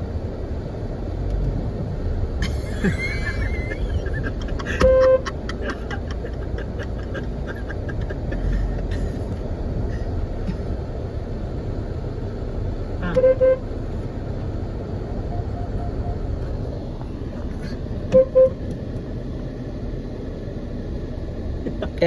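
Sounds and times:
car engine and tyres rumbling: 0.0 - 22.0
car horn blasts: 4.6 - 5.4, 13.0 - 13.8, 18.1 - 18.6.

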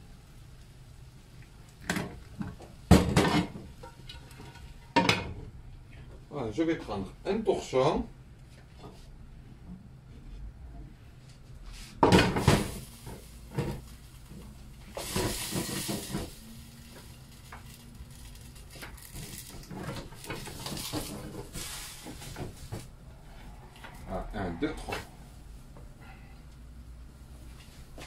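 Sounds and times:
cloth hissing and rustling: 11.7 - 24.0.

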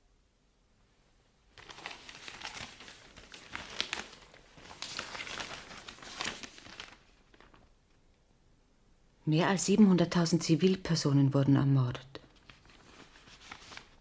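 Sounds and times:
newspaper pages rustling: 1.5 - 8.0, 12.2 - 14.0.

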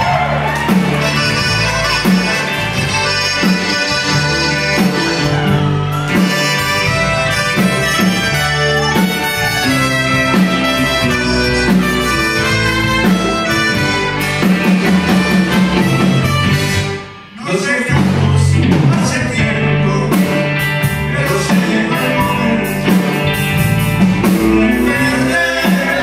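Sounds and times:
trumpet melody: 0.0 - 17.7
drum kit beat: 0.0 - 26.0
accordion: 0.1 - 17.5.

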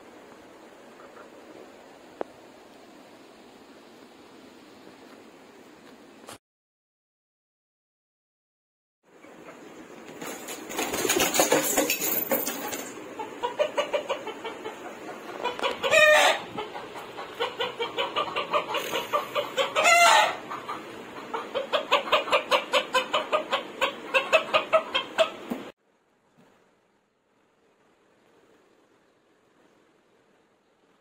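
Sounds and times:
chickens clucking: 0.8 - 1.7, 9.1 - 25.7
loud short chicken calls: 15.3 - 20.6.

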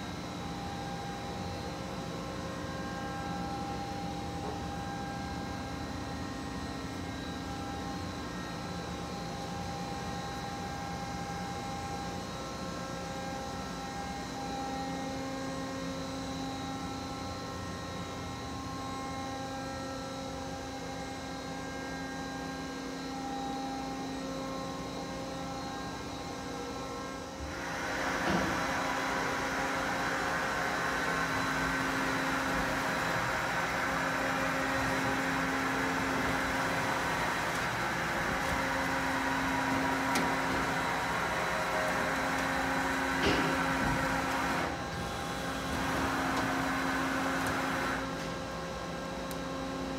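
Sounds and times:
lathe machine hum: 23.0 - 49.9
machine thump: 43.1 - 44.1.

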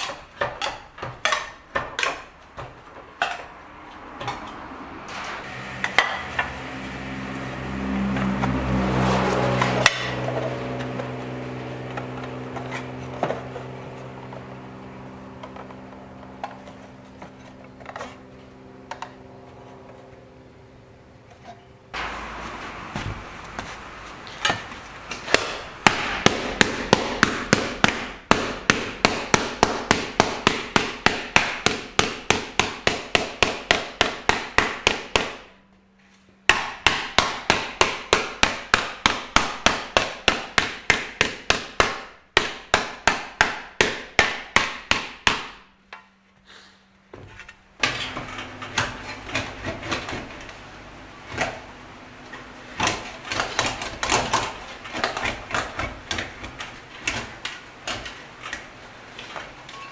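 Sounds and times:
hand hammer striking: 24.4 - 35.5, 36.5 - 45.6.

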